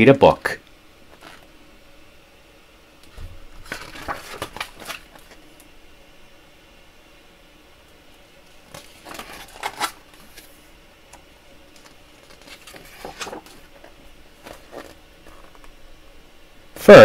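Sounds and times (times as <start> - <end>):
book pages turning: 1.1 - 1.5, 3.0 - 5.7, 8.5 - 15.8.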